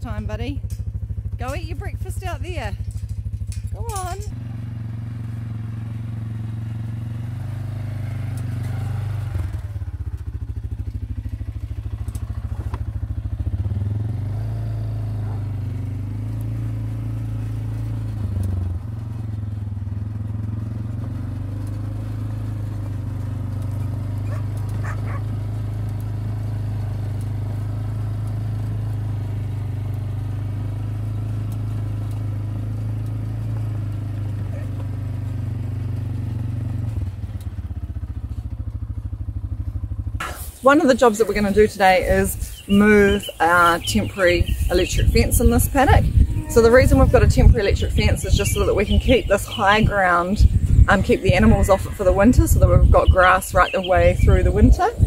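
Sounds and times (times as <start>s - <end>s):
quad bike engine running: 0.0s - 55.0s.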